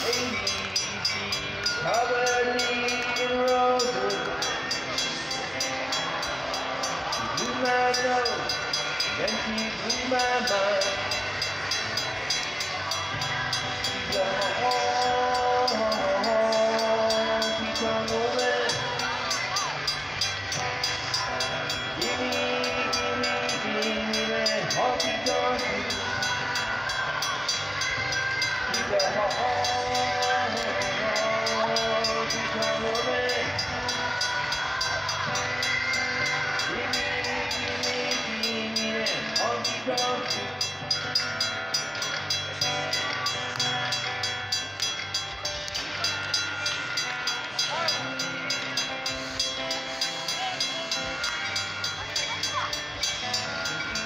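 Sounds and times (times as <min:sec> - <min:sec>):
crossing warning bell ringing: 0:00.0 - 0:54.0.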